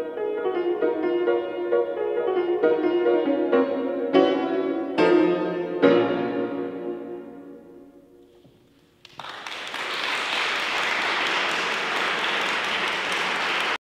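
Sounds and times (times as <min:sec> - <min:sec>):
grand piano chord: 0:00.0 - 0:08.4
applause: 0:09.0 - 0:13.8.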